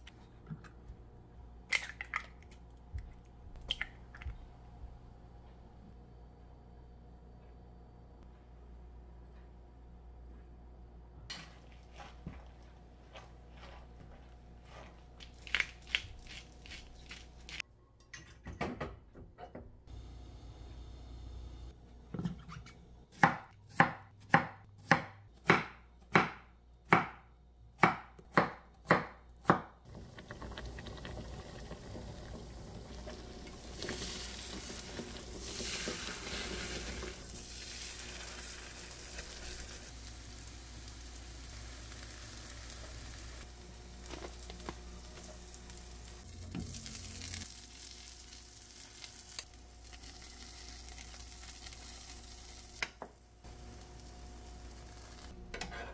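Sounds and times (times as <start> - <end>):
knife chopping on wooden board: 23.2 - 27.2
pancakes sizzling in a frying pan: 33.6 - 52.8.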